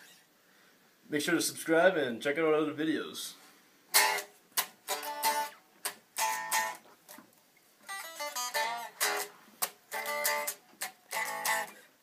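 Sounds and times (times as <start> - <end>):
guitar playing rock riff: 3.9 - 6.9, 7.8 - 12.0.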